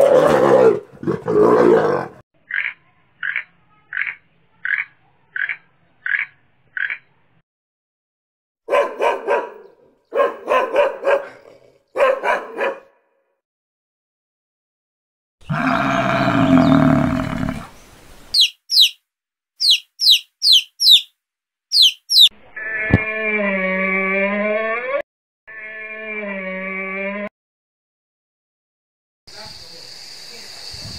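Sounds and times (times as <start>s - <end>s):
dog barking: 8.7s - 13.1s
camel groaning call: 15.4s - 17.7s
high falling bird chirps: 15.4s - 19.0s, 19.6s - 21.1s, 21.7s - 22.3s.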